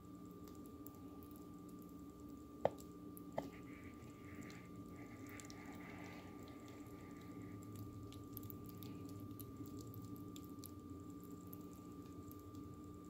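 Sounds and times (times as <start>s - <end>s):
steady hum: 0.0s - 13.0s
wet pasta squishing: 0.5s - 13.0s.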